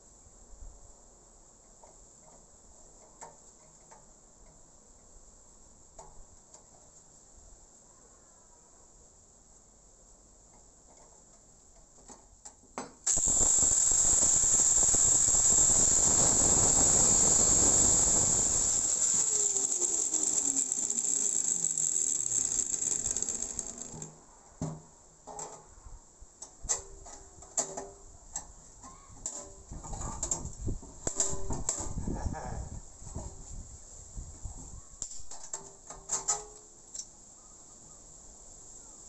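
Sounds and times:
steel parts clicking and knocking: 10.9 - 24.2
angle grinder cutting steel: 13.1 - 24.1.

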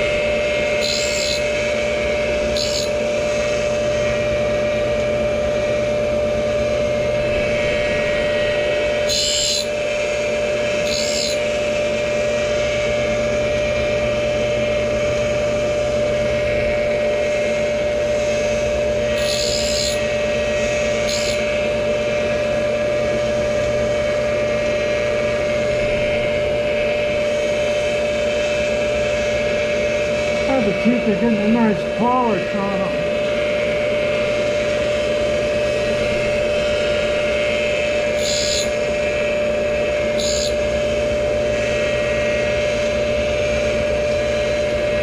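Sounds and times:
grinder whining: 0.0 - 12.8, 16.0 - 22.4, 29.1 - 42.4
high hissing scrapes of grinding wheel: 0.8 - 1.4, 2.6 - 2.9, 9.1 - 9.7, 10.9 - 11.4, 19.2 - 20.0, 21.0 - 21.4, 38.2 - 38.7, 40.2 - 40.5.

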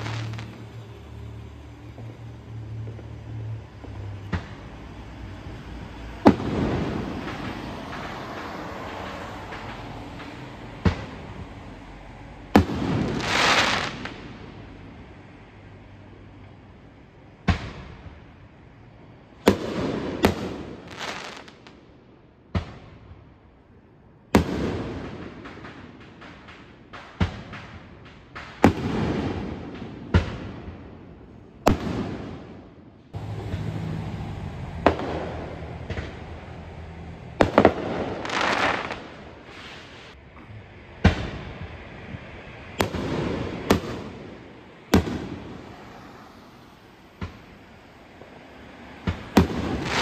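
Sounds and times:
fireworks bangs: 0.0 - 1.1, 6.2 - 11.6, 12.5 - 14.6, 17.4 - 18.4, 19.4 - 21.9, 24.3 - 34.0, 34.7 - 40.2, 41.0 - 50.0
fireworks crackling: 0.0 - 11.6, 12.5 - 14.6, 19.3 - 21.8, 24.3 - 40.3, 41.0 - 50.0.

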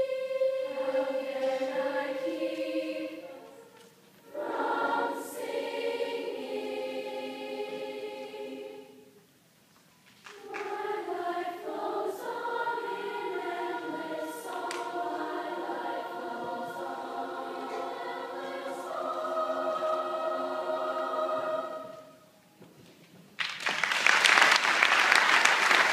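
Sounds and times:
children's choir singing: 0.0 - 9.2, 10.3 - 22.5
audience applause: 23.4 - 25.9.

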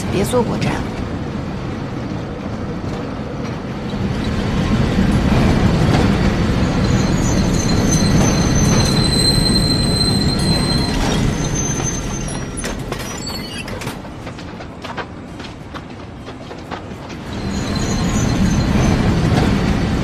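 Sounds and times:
tram low rumble: 0.0 - 20.0
steel wheel squeal: 6.6 - 13.9, 17.3 - 19.2.

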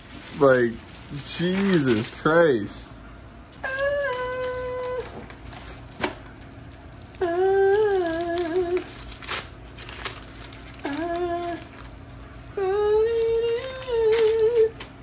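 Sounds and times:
paper sheets rustling: 0.0 - 2.8, 3.8 - 15.0
man singing in a high voice: 7.2 - 8.9.

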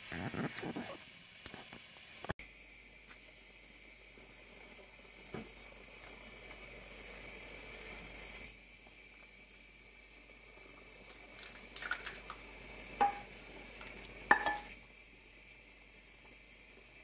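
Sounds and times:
metallic knocks against a pot: 14.3 - 14.7.

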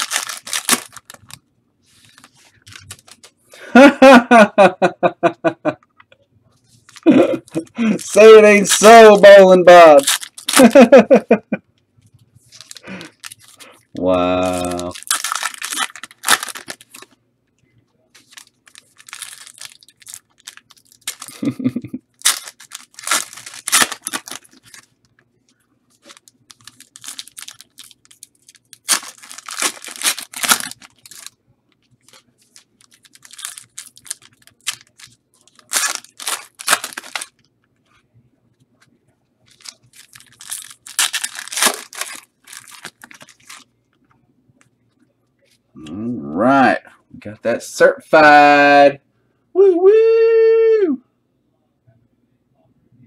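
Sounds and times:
wrappers tearing and crinkling: 0.0 - 3.3, 6.9 - 11.0, 12.5 - 17.2, 18.2 - 25.1, 26.0 - 31.4, 32.0 - 37.5, 39.5 - 43.7.

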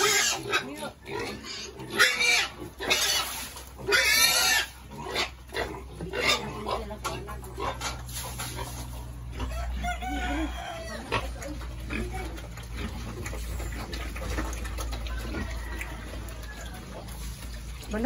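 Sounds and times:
pigs calling: 0.0 - 18.0
rooster crowing: 9.4 - 11.2, 14.9 - 17.1.

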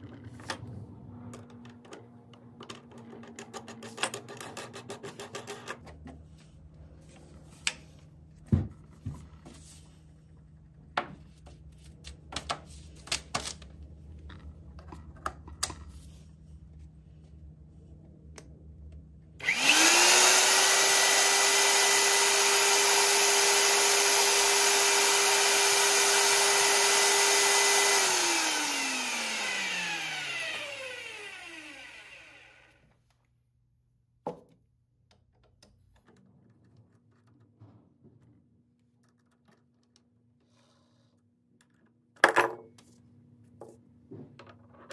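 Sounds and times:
drill press motor whining: 19.4 - 32.8.

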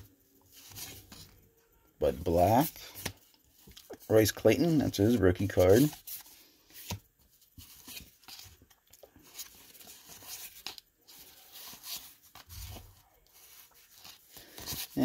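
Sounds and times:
cardboard cards rustling: 0.0 - 1.4, 2.1 - 15.0.

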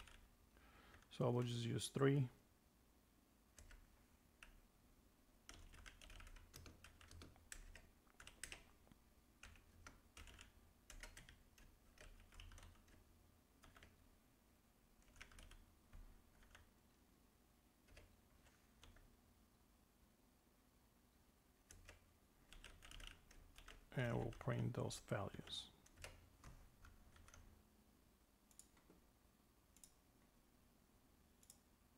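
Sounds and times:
faint keyboard typing: 0.0 - 1.3, 3.5 - 4.7, 5.4 - 14.2, 14.9 - 16.9, 17.7 - 19.2, 21.6 - 27.7, 28.4 - 30.3, 31.3 - 31.8.

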